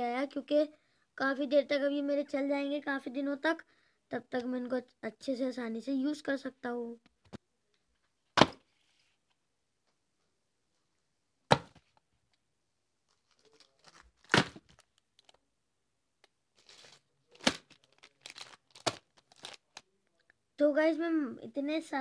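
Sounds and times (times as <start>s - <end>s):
packs knocking on table: 8.4s - 8.6s, 11.5s - 11.9s, 14.2s - 14.8s, 17.4s - 17.8s
packaging rustle: 13.1s - 15.4s, 16.6s - 19.9s.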